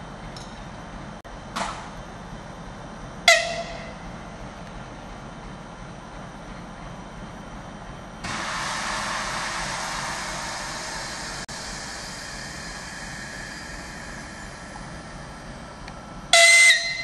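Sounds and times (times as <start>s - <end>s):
diesel locomotive engine rumbling: 0.0s - 17.0s
compressed air hiss: 8.2s - 15.8s.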